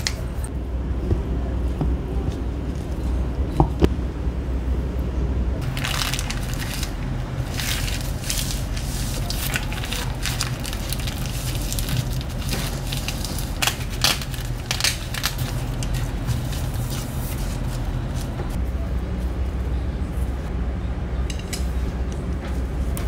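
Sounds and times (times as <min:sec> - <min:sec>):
dried seaweed sheets crackling: 0:05.6 - 0:18.6.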